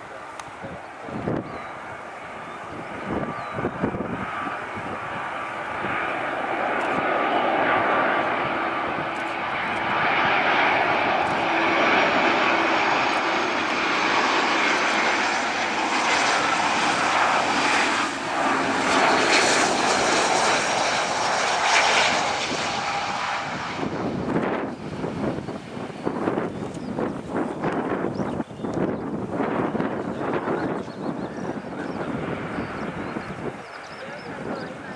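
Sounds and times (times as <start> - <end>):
jet airliner passing: 0.0 - 34.9.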